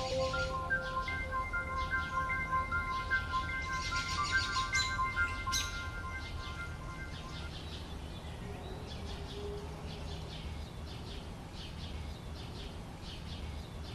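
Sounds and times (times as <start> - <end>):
music held notes: 0.0 - 7.8
birds chirping: 0.0 - 13.9
low rumble of wind: 5.0 - 13.9.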